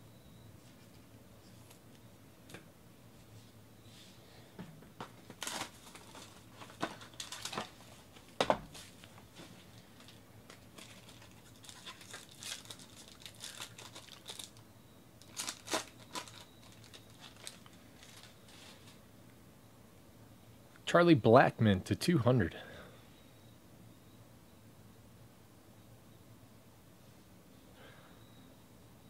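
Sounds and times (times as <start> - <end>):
foil pack tearing and crinkling: 5.3 - 7.8, 9.7 - 14.6, 15.2 - 19.0.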